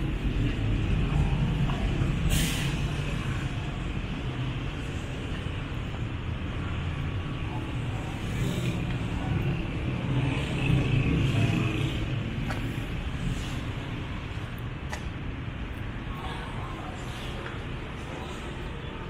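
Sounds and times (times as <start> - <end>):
vehicle engines running: 0.0 - 19.0
short sharp hiss: 2.3 - 2.8.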